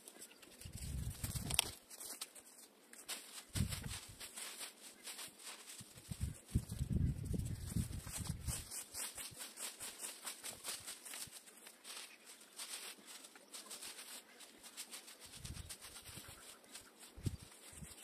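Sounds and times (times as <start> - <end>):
dry leaves rustling and crackling: 0.0 - 18.0.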